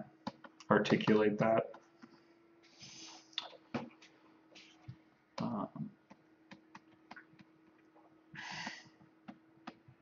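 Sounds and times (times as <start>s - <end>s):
faint steady hum: 0.0s - 10.0s
computer keys and mouse clicking: 6.1s - 7.5s.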